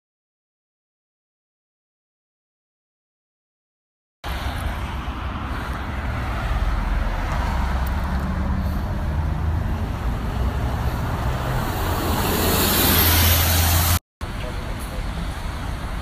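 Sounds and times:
road traffic passing: 4.2s - 16.0s
semi truck going by: 4.2s - 16.0s.

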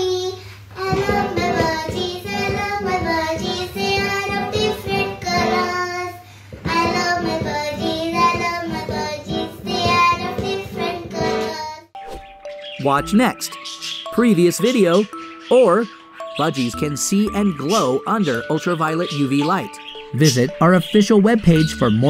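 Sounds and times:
girl singing: 0.0s - 11.9s
backing music with beat: 0.8s - 5.8s, 6.6s - 22.0s.

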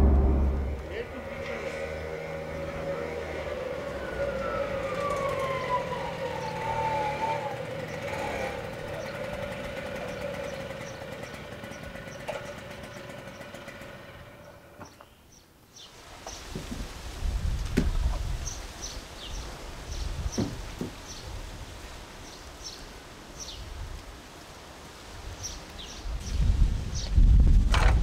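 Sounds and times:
high whine falling in pitch: 0.0s - 1.2s
small vehicle engine hum: 0.0s - 15.0s.

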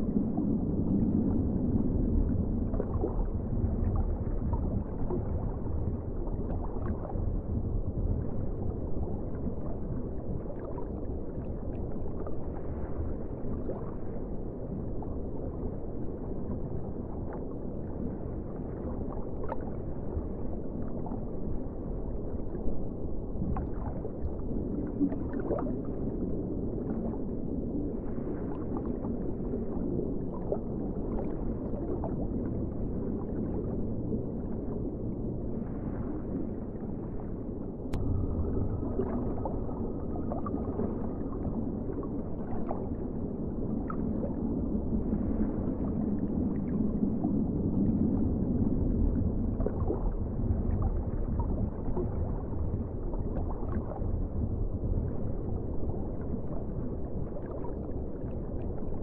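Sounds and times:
muffled underwater rumble: 0.0s - 59.0s.

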